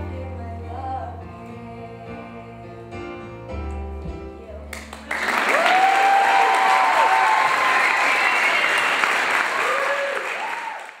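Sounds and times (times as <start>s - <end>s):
audience applauding and cheering: 4.7s - 11.0s.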